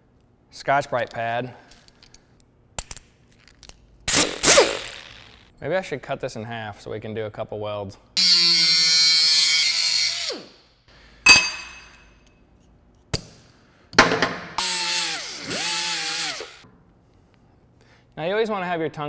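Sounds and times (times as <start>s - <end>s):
sharp metal clink: 11.3s - 12.2s
grinder cutting steel: 14.6s - 16.6s.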